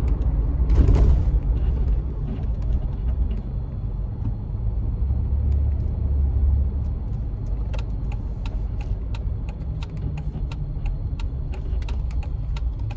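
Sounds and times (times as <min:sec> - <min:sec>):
engine and road rumble: 0:00.0 - 0:12.9
regular ticking: 0:07.4 - 0:12.9.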